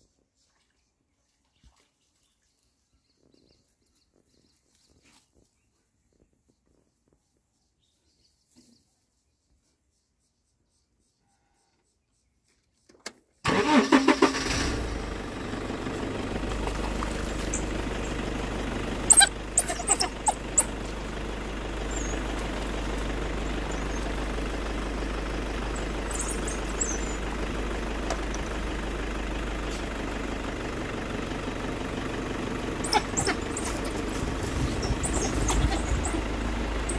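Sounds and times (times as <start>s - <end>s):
vehicle engine idling: 13.5s - 36.9s.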